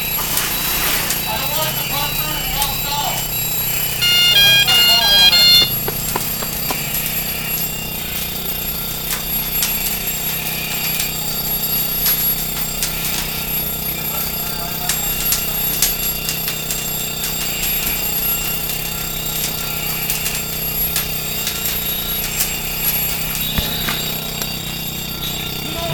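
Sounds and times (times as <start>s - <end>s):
brief high-pitched tones: 4.0s - 5.8s
fire crackling and popping: 4.9s - 14.2s, 14.8s - 25.9s.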